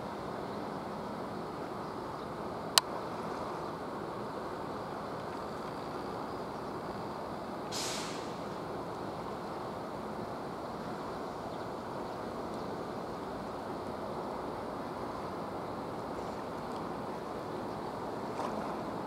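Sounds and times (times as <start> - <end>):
short sharp hiss: 7.7 - 8.6
harbour rumble: 8.2 - 19.0.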